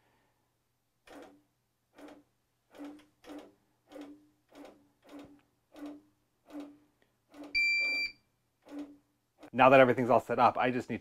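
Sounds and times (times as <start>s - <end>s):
quilting machine stitching: 1.0s - 8.0s, 8.6s - 9.6s
high electronic beep: 7.6s - 8.2s.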